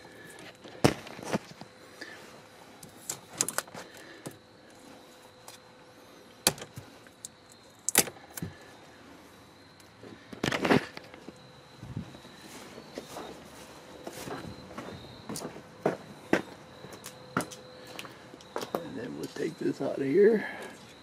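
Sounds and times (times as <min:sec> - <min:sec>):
faint steady tone: 0:00.0 - 0:21.0
hands handling loose wiring: 0:02.8 - 0:05.7, 0:06.4 - 0:08.6.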